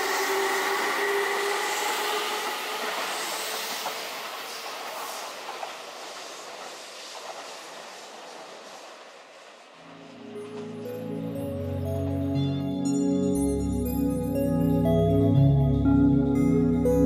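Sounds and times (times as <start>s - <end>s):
wheel-on-rail noise: 0.0s - 11.7s
electric train whine: 0.0s - 17.0s.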